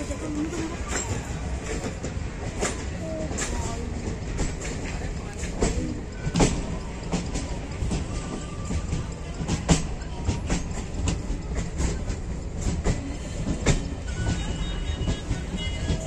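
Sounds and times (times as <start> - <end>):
train wheels rumbling on rails: 0.0 - 16.0
wheels knocking on track: 0.0 - 16.0.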